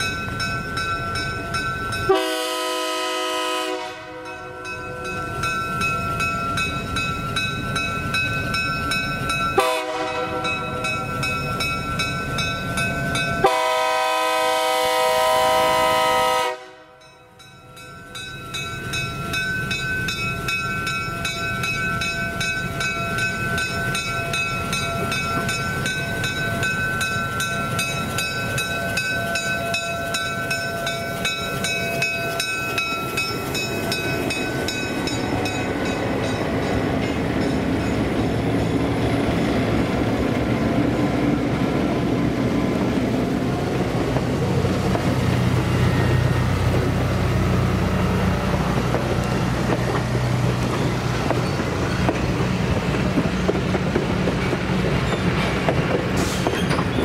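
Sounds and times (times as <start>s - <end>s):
diesel locomotive rumble: 0.0s - 57.0s
bell ringing: 4.2s - 9.6s, 17.0s - 38.8s.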